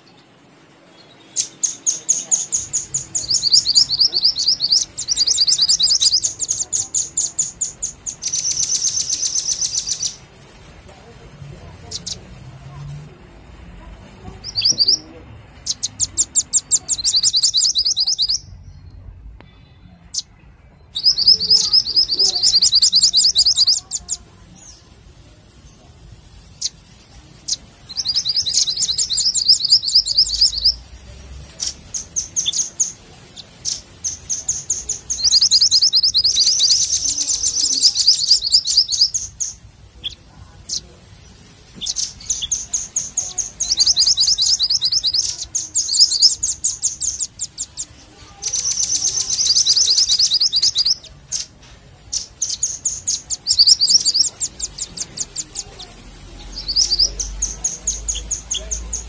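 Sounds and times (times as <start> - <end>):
rapid high chirping bird trills: 0.0 - 19.0, 19.9 - 59.0.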